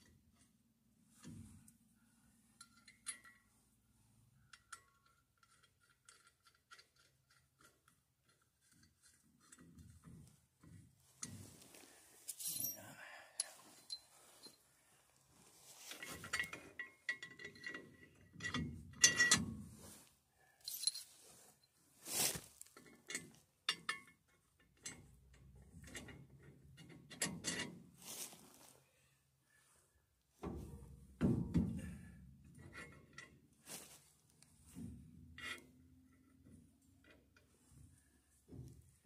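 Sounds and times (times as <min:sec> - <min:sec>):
metal tools clinking and knocking: 0:02.6 - 0:03.5, 0:12.3 - 0:14.6, 0:15.8 - 0:19.4, 0:20.6 - 0:21.2
scuffing handling noise: 0:22.0 - 0:22.7, 0:28.0 - 0:28.8.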